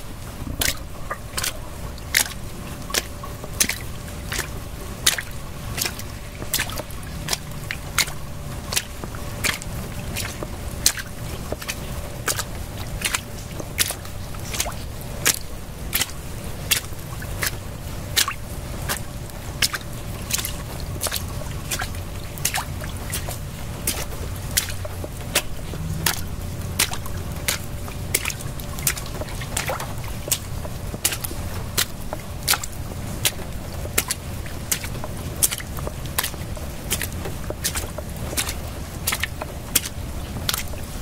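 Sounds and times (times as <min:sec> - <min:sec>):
low steady rumble: 0:00.0 - 0:41.0
water dripping: 0:00.0 - 0:41.0.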